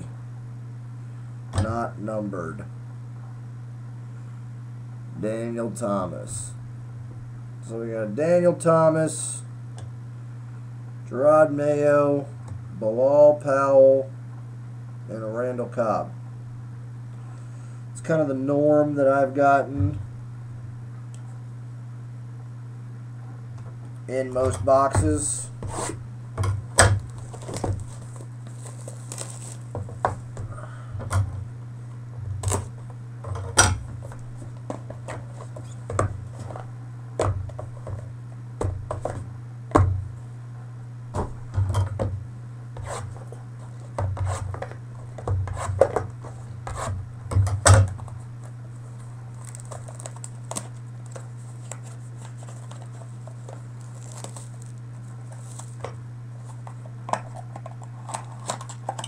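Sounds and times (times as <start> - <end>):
steady low hum: 0.0 - 59.0
cards and cardboard rustling: 27.0 - 30.6, 32.4 - 36.7, 47.9 - 59.0.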